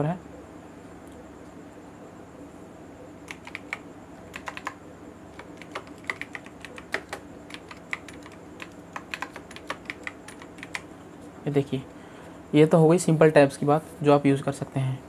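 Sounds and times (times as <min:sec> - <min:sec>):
keyboard keystroke clicks: 0:03.3 - 0:04.8, 0:05.4 - 0:10.8.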